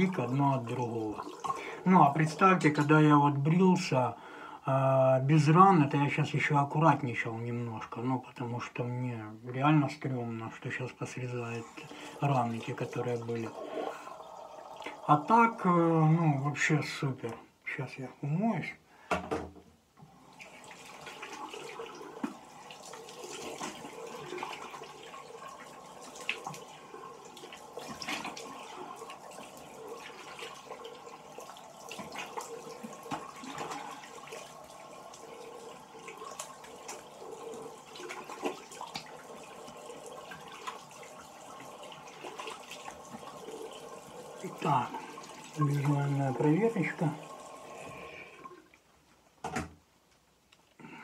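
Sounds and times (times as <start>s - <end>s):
tap water running into sink: 0.0s - 3.9s, 11.0s - 17.4s, 19.1s - 49.8s
splashing face rinse: 0.0s - 4.0s, 10.7s - 17.0s, 20.2s - 48.9s.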